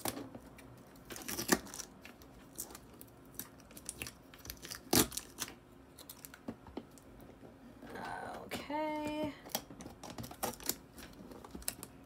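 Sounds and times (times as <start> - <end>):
tape ripping: 1.0 - 6.4.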